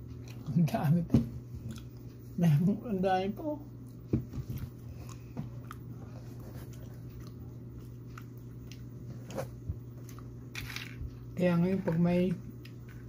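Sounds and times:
person chewing food: 0.0s - 0.6s, 1.4s - 2.4s, 3.8s - 10.5s
low steady hum: 0.0s - 13.0s.

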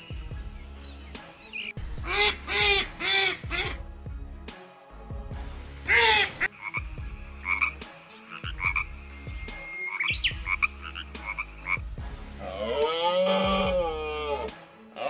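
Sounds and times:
frog croaking: 5.9s - 13.9s.

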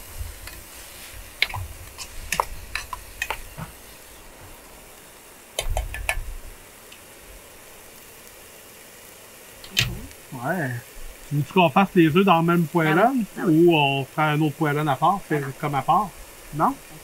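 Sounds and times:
utensil scraping frying pan: 0.0s - 4.1s
faint sizzle: 0.0s - 17.0s.

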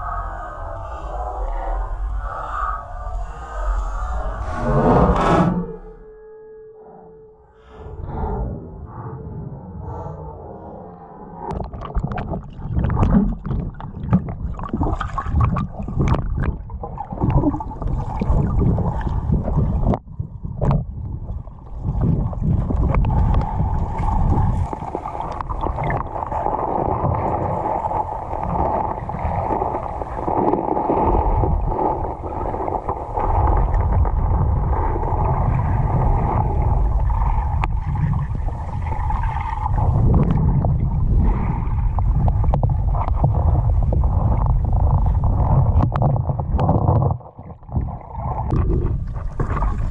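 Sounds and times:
water rushing underwater: 0.0s - 49.9s
underwater clicks and knocks: 11.5s - 18.7s, 19.7s - 20.9s, 42.0s - 49.9s.

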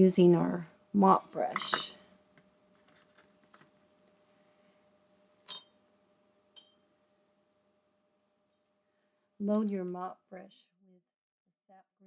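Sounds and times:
brush clinking on a glass jar: 5.5s - 5.7s.

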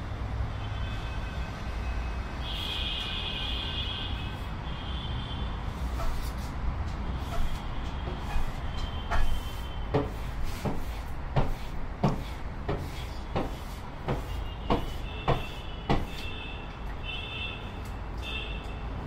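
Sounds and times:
low traffic rumble: 0.0s - 19.0s
knocks of wooden window panel: 9.1s - 16.3s.

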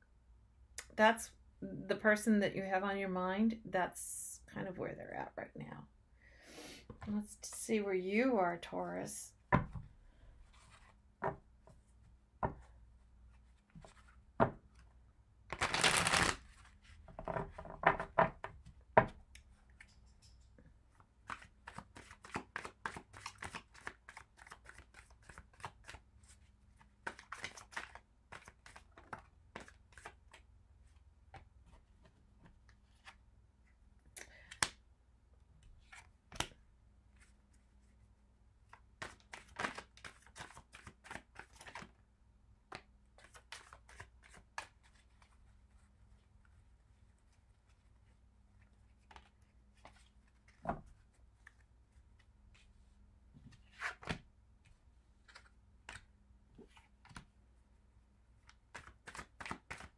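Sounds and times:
cards being shuffled by hand: 10.5s - 11.0s, 15.5s - 17.7s, 21.2s - 33.2s, 38.6s - 42.0s, 42.7s - 45.8s, 53.5s - 57.3s, 58.4s - 59.9s.

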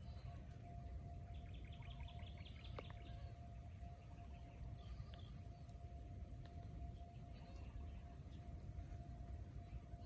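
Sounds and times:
low outdoor rumble: 0.0s - 10.0s
steady high whine: 0.0s - 10.0s
bird chirping: 1.3s - 5.7s.

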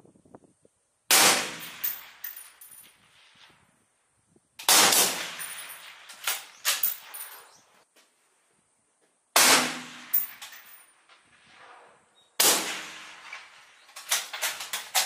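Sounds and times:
rifle shots with echo: 1.1s - 2.2s, 4.6s - 6.9s, 9.4s - 10.4s, 12.4s - 15.0s.

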